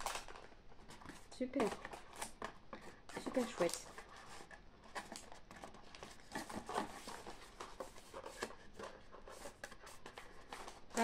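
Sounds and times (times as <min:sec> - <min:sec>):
paper packaging crinkling: 0:00.0 - 0:11.0.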